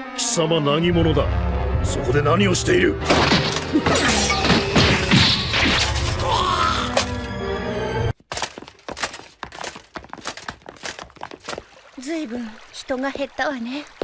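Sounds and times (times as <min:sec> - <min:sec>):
dramatic music: 0:00.0 - 0:08.2.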